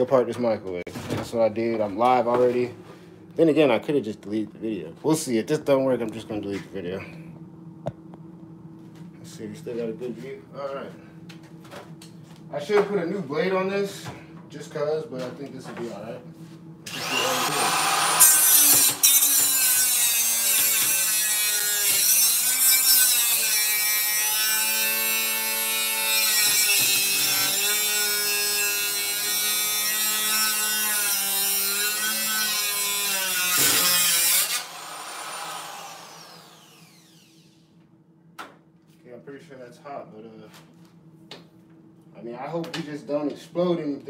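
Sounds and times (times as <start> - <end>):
grinder spinning down whine: 16.9 - 19.1, 34.6 - 37.6
angle grinder cutting metal: 16.9 - 37.5.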